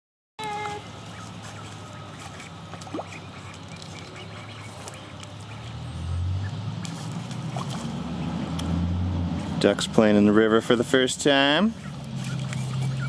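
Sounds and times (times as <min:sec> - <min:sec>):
ducks quacking: 0:00.4 - 0:08.6, 0:11.4 - 0:13.0.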